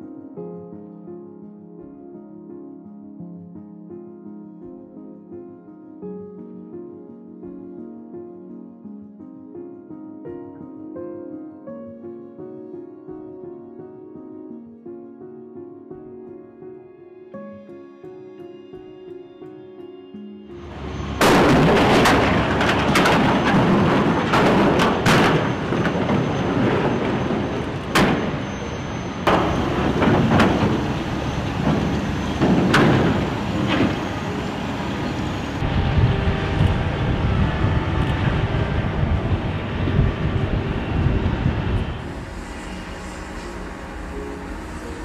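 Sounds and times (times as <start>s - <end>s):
diesel engine running: 20.6s - 44.4s.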